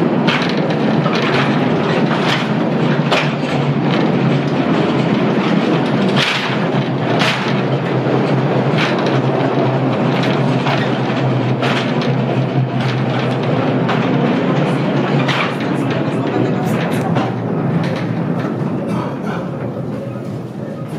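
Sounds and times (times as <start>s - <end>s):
sharp rail clacks: 0.0s - 20.9s
train rumbling on rails: 0.0s - 20.9s.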